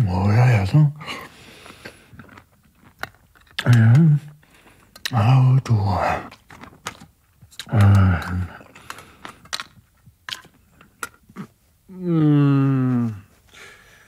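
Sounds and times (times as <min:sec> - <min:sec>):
man speaking: 0:00.0 - 0:01.0, 0:03.6 - 0:04.3, 0:05.1 - 0:06.3.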